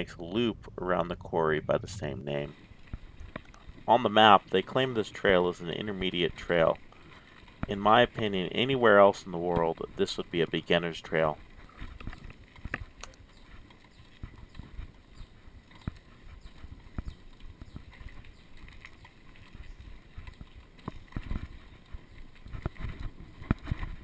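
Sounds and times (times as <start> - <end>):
low rumble: 0.0 - 4.5
bike frame rattling and clunking: 2.4 - 24.0.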